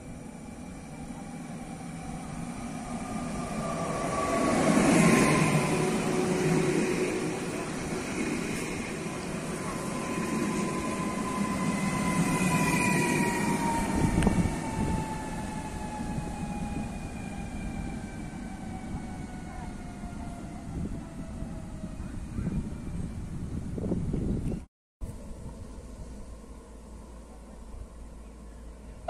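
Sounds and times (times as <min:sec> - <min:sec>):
train rumbling: 0:00.0 - 0:29.0
train motor whine: 0:02.9 - 0:17.4.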